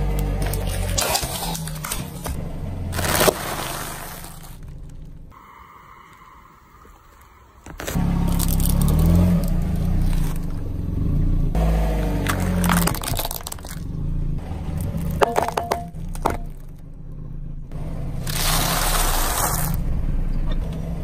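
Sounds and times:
plastic crunching under tyre: 0.0 - 5.3, 7.6 - 10.6, 12.1 - 13.9, 14.6 - 16.8, 18.2 - 19.8
car engine rumble: 0.0 - 21.0.

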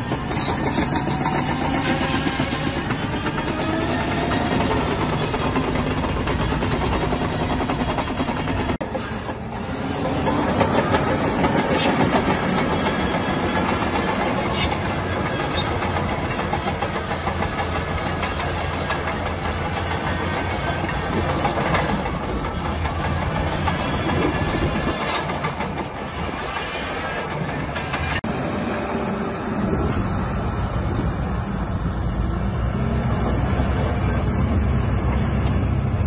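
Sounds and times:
bulldozer diesel engine: 0.0 - 36.0
steel tracks clattering: 0.0 - 36.0.

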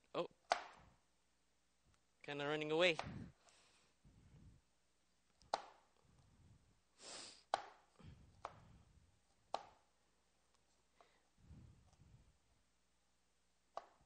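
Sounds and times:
short hiss: 7.0 - 7.4.

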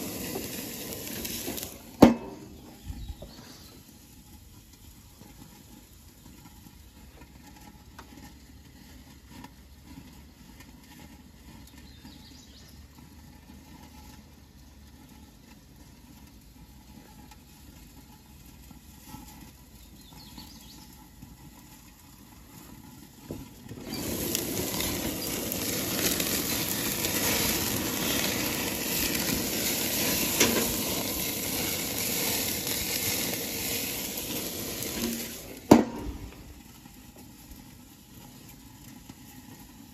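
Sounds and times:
steaks sizzling on a grill: 0.0 - 12.6, 15.0 - 39.9
pops and crackles: 0.0 - 12.7, 15.2 - 39.9
faint outdoor background: 0.0 - 39.9.

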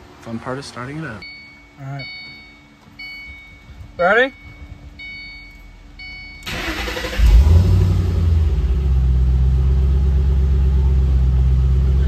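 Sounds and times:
car engine idling: 0.0 - 12.0
car engine cranking and starting: 5.1 - 12.0.

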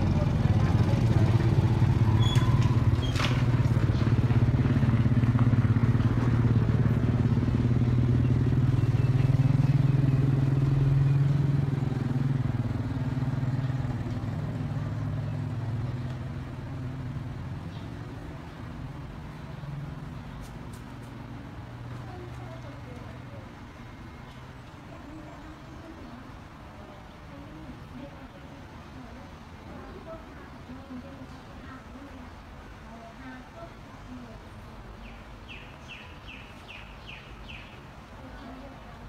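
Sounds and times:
low engine hum: 0.0 - 27.0.

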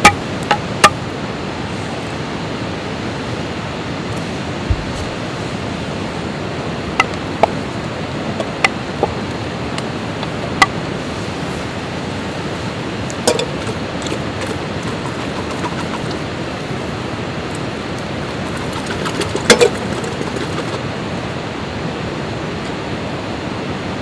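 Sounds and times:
steady rushing noise: 0.0 - 24.0
metal can knocking on pot: 13.3 - 16.2, 18.3 - 20.8.

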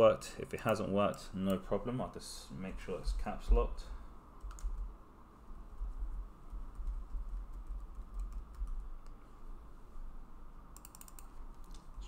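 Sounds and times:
keyboard keystroke clicks: 4.5 - 4.8, 10.8 - 11.8.

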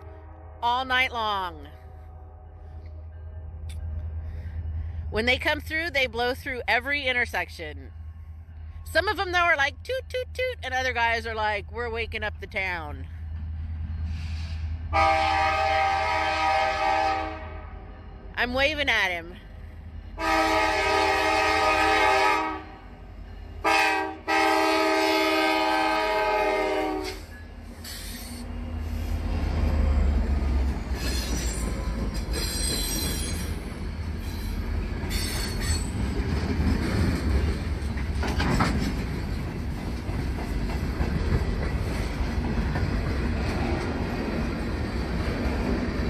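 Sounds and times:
locomotive horn blasts: 14.9 - 17.8, 20.2 - 22.9, 23.6 - 27.2.

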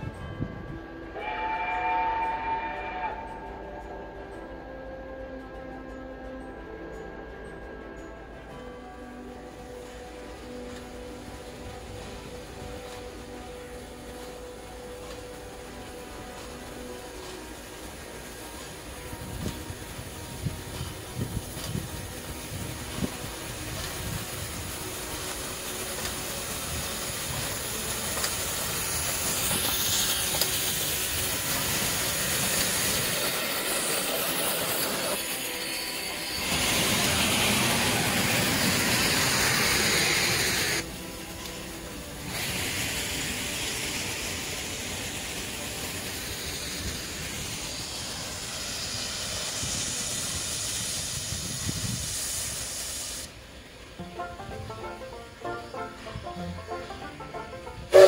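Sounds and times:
train rumbling by: 0.0 - 58.0
steam hissing: 8.8 - 58.0
loud blast of steam: 13.8 - 58.0.

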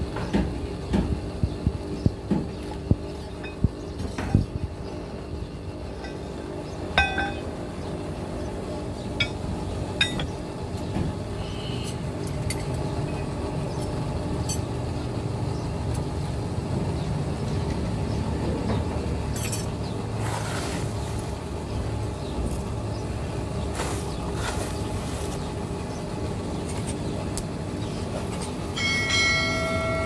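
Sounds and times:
steady low rumble: 0.0 - 11.4
steel plates clinking: 7.0 - 7.5, 10.0 - 10.4.

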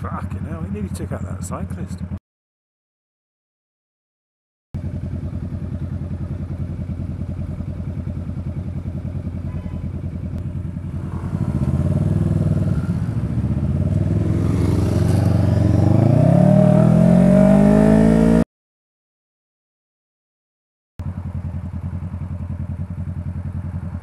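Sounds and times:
motorcycle engine idling: 0.0 - 2.2, 4.8 - 15.8, 21.0 - 24.0.

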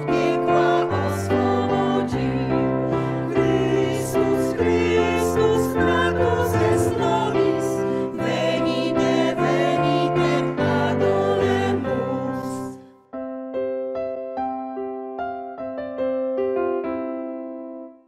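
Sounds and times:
women's choir singing: 0.0 - 12.9
piano: 0.0 - 18.0.

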